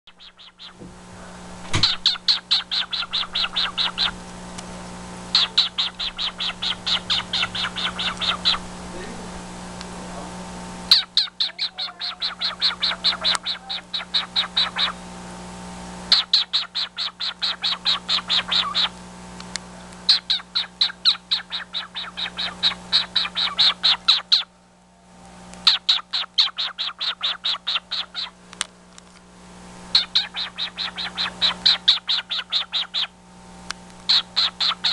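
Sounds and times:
cockatiel clicking calls: 0:00.1 - 0:00.8, 0:01.8 - 0:04.2, 0:05.3 - 0:08.6, 0:10.9 - 0:15.0, 0:16.1 - 0:18.9, 0:19.9 - 0:24.5, 0:25.6 - 0:28.4, 0:29.9 - 0:33.1, 0:34.0 - 0:34.9.

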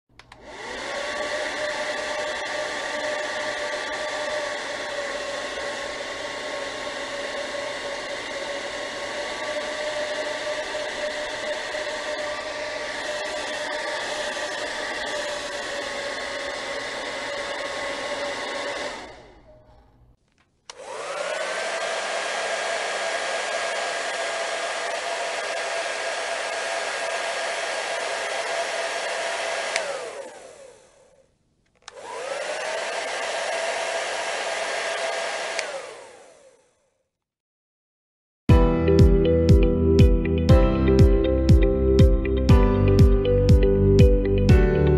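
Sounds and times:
hair dryer spinning up and down: 0:00.1 - 0:19.6, 0:20.7 - 0:36.9
hair dryer blowing: 0:00.2 - 0:19.5, 0:20.7 - 0:31.2, 0:31.8 - 0:36.7.

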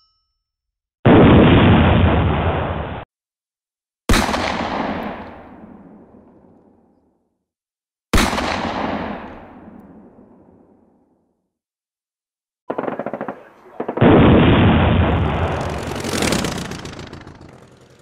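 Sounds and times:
heavy gun blasts with rumble: 0:01.1 - 0:03.0, 0:08.2 - 0:10.4, 0:12.7 - 0:17.6.

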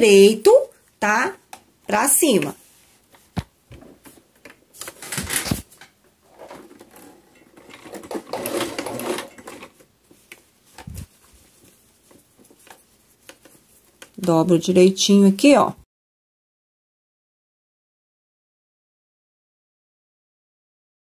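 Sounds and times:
sewing machine stitching: 0:06.3 - 0:09.8.

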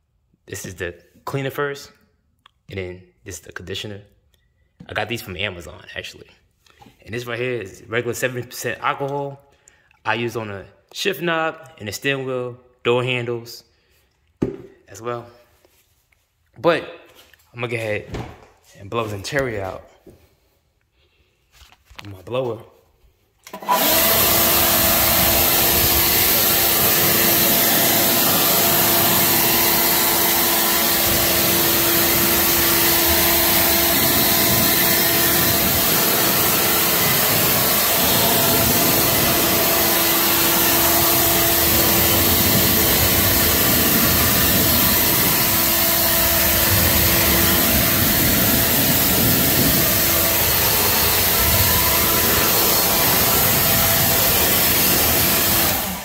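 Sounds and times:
air blower whining: 0:23.4 - 0:56.0.

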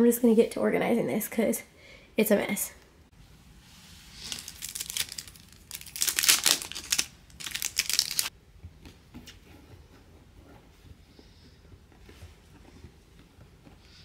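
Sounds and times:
plastic packaging crinkling and tearing: 0:04.2 - 0:08.3.

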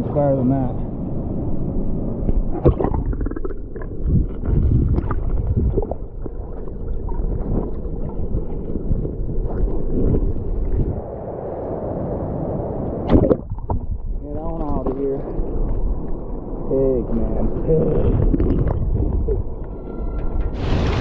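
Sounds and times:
underwater knocks and pops: 0:02.3 - 0:10.9, 0:13.1 - 0:15.0, 0:17.9 - 0:19.8
muffled underwater river gurgle: 0:02.3 - 0:19.7.

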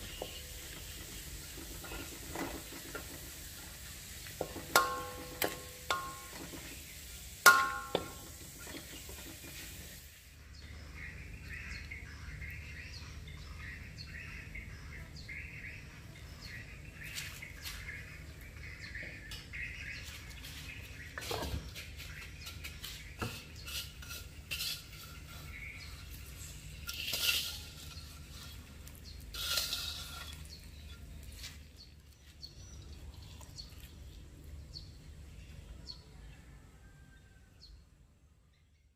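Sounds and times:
spatula scraping in a wok: 0:00.0 - 0:10.2, 0:20.2 - 0:31.9
garlic frying: 0:00.0 - 0:10.4, 0:20.3 - 0:35.0
dishes and utensils clinking: 0:04.4 - 0:06.8, 0:07.4 - 0:09.8, 0:22.4 - 0:28.7
birds chirping: 0:04.5 - 0:36.5.

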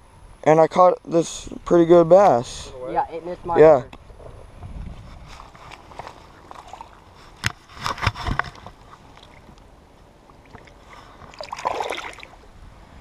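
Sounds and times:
water splashing and sloshing: 0:05.3 - 0:12.5.

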